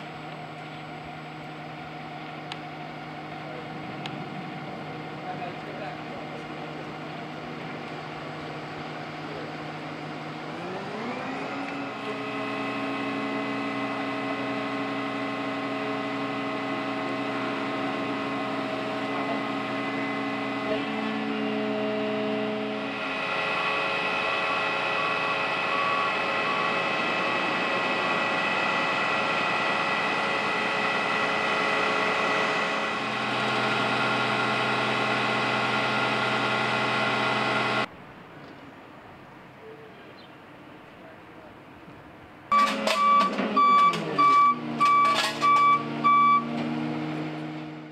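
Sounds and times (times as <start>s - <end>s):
diesel truck engine running: 0.0s - 37.9s, 42.1s - 47.9s.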